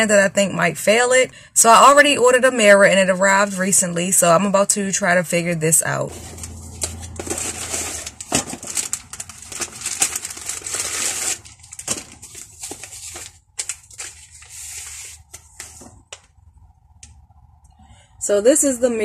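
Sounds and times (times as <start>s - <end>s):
plastic packaging crinkling: 6.1s - 16.3s.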